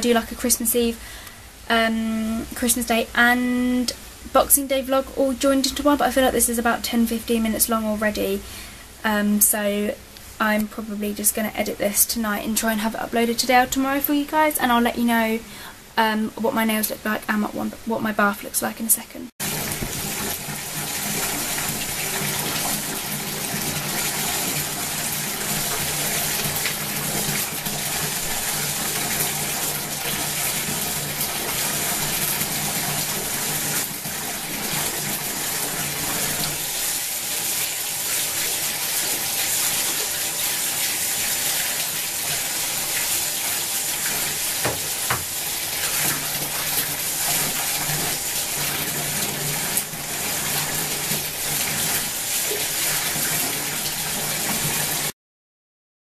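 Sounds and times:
tap water pouring into bathtub: 19.4s - 55.1s.

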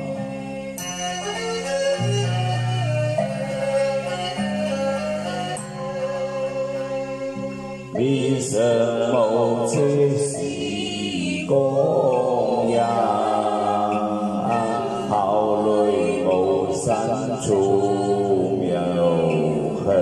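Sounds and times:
sustained instrumental backing: 0.0s - 20.0s
man chanting into a microphone: 11.5s - 20.0s.

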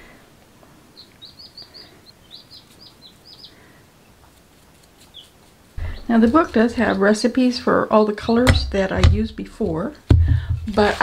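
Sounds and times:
chicks peeping: 0.0s - 7.3s.

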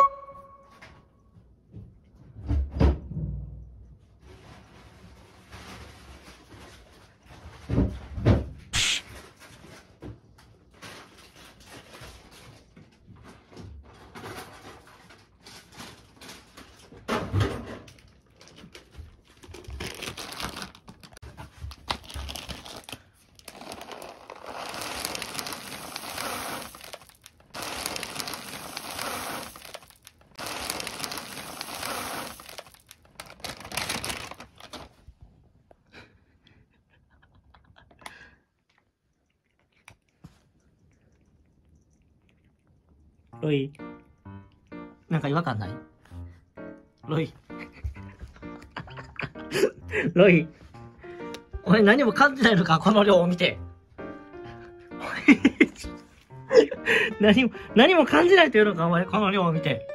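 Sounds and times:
dry cat food pouring: 14.2s - 17.0s, 17.9s - 35.0s
plastic bag crinkling: 18.0s - 35.1s.

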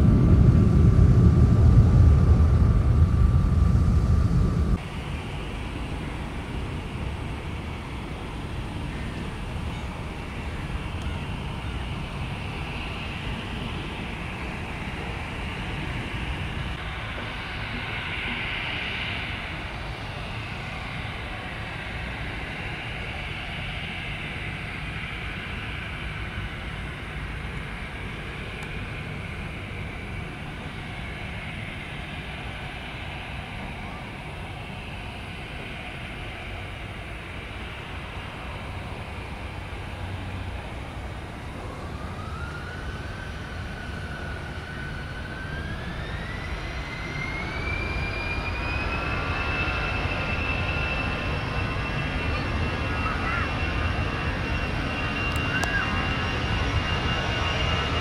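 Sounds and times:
airliner engines running: 0.0s - 58.0s.

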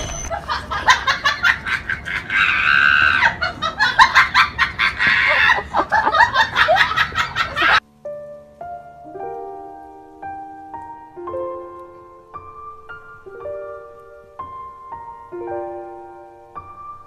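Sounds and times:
person laughing with shrieks: 0.0s - 7.8s
soft piano notes: 7.4s - 17.0s.

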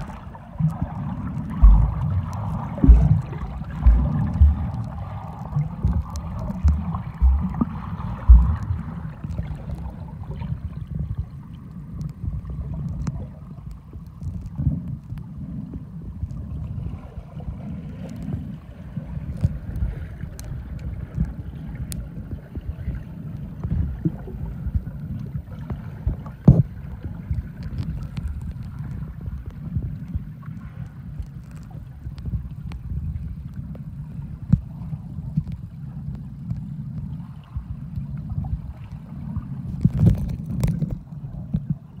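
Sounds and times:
underwater thumps: 0.0s - 9.9s, 26.4s - 26.8s
underwater rumble of moving water: 0.0s - 42.0s.

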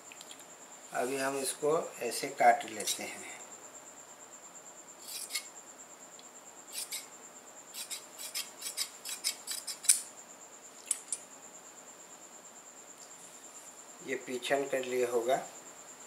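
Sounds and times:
shears snipping fabric: 5.0s - 5.5s, 6.8s - 7.1s, 7.8s - 10.0s.

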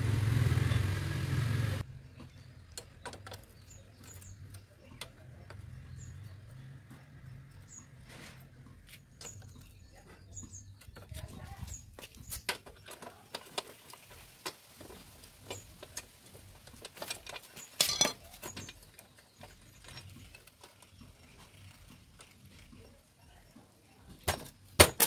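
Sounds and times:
metal clatter: 15.4s - 21.6s.

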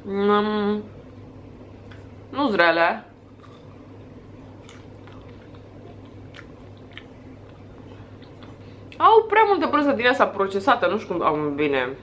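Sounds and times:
low steady hum: 0.0s - 12.0s
close-mouthed chewing: 3.3s - 9.0s
soft crunches and mouth clicks: 3.3s - 9.0s.

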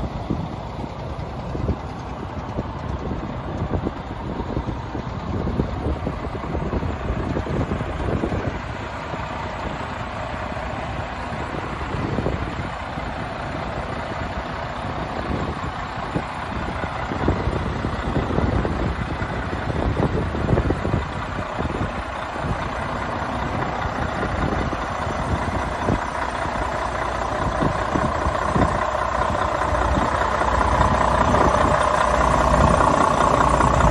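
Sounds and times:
truck diesel engine idling: 0.0s - 33.9s.

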